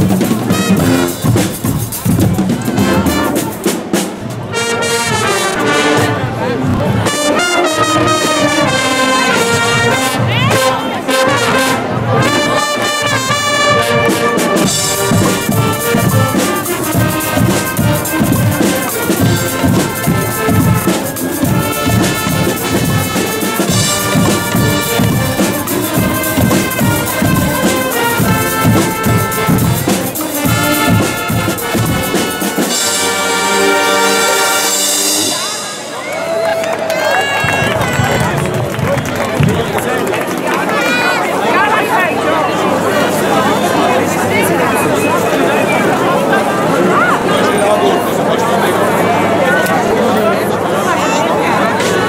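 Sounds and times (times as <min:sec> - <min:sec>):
steady drum beat: 0:00.0 - 0:10.8, 0:12.2 - 0:35.8
trumpets and trombones: 0:00.0 - 0:36.0.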